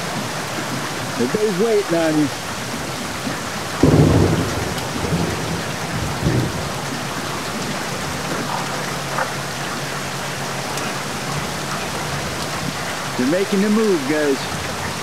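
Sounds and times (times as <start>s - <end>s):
heavy rain hissing: 0.0s - 15.0s.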